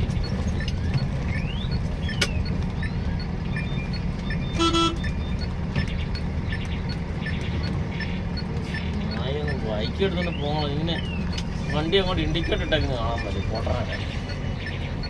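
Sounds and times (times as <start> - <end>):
engine and road rumble: 0.0 - 15.0
fainter higher horn toots: 4.6 - 5.1
loud vehicle horn toot: 4.6 - 5.1.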